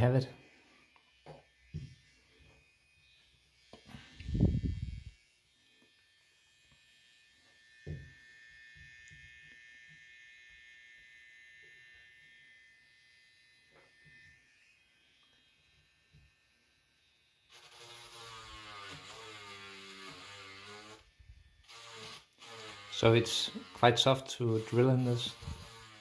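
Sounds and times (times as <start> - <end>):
small motor high whine: 0.0 - 26.0
grinding into plastic: 25.2 - 26.0.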